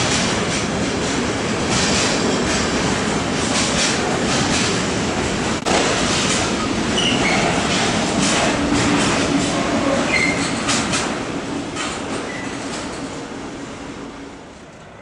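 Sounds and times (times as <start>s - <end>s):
wheels clacking over rail joints: 5.6s - 13.2s
wheel squeals: 7.0s - 7.5s, 10.1s - 10.6s.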